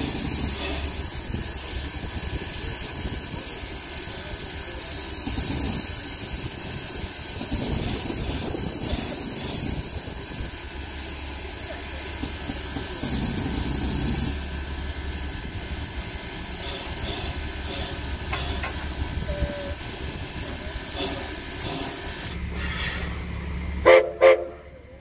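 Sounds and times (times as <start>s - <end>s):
steam locomotive hiss and rumble: 0.0s - 25.0s
steam whistle blasts: 23.8s - 24.8s.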